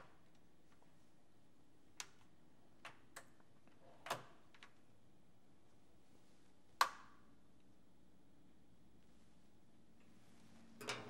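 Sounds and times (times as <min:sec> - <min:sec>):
metal tools clicking in drawer: 0:10.8 - 0:11.0.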